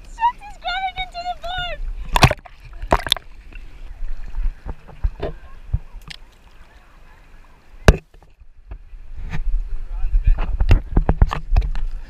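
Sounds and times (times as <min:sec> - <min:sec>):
water lapping against paddleboard: 0:00.0 - 0:12.0
wind rumble on microphone: 0:08.4 - 0:12.0.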